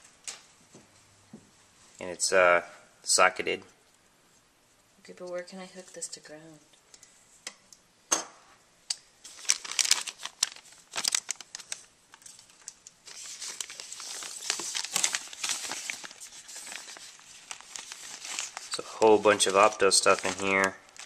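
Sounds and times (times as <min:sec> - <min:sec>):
plastic bags crinkling: 0:09.2 - 0:21.0.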